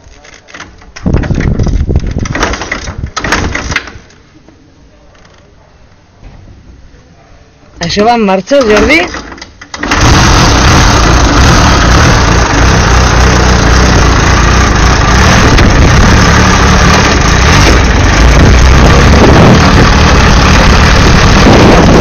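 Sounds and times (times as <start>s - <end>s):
motorcycle engine starting and running: 0.8s - 4.1s, 8.6s - 22.0s.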